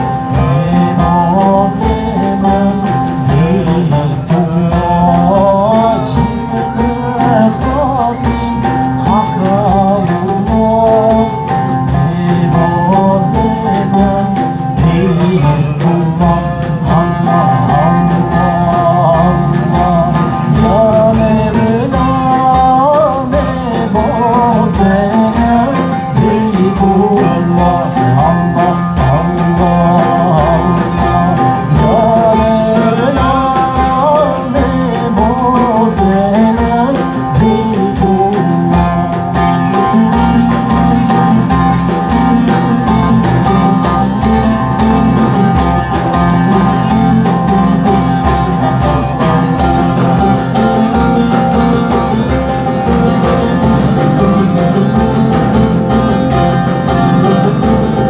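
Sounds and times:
frame drum beat: 0:00.0 - 0:58.0
person singing: 0:00.0 - 0:58.0
plucked lute: 0:00.0 - 0:58.0.

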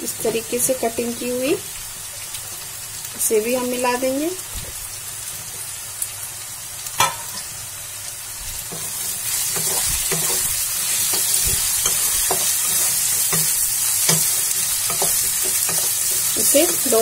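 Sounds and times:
vegetables sizzling in hot oil: 0:00.0 - 0:17.0
spatula scraping and tapping pan: 0:08.7 - 0:17.0.

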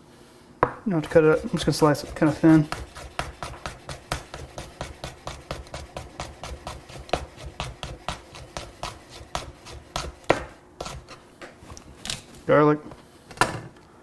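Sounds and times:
knife chopping on wooden board: 0:00.6 - 0:11.2.

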